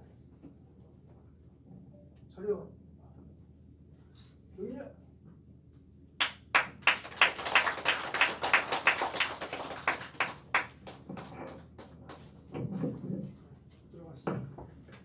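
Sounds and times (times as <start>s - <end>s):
group of people applauding: 6.2s - 12.2s.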